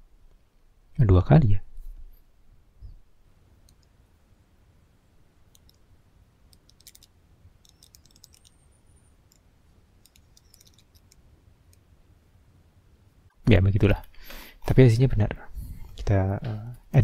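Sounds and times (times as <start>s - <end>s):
computer keyboard key clicks: 6.6s - 8.6s, 10.0s - 11.2s.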